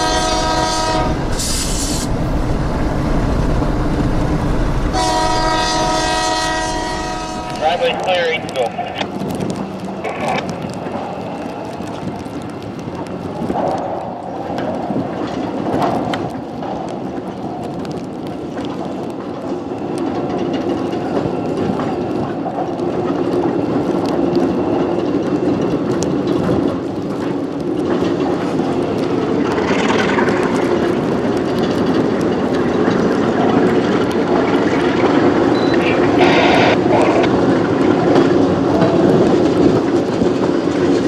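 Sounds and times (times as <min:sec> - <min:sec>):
diesel locomotive engine running: 0:00.0 - 0:11.3, 0:29.4 - 0:41.0
train wheels clicking over rail joints: 0:00.0 - 0:35.6, 0:36.2 - 0:41.0.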